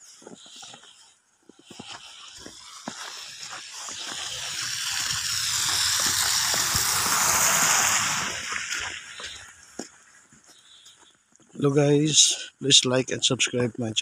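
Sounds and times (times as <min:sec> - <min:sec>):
car tyres hissing through slush: 0:00.0 - 0:10.2
footsteps crunching in snow: 0:00.0 - 0:11.6.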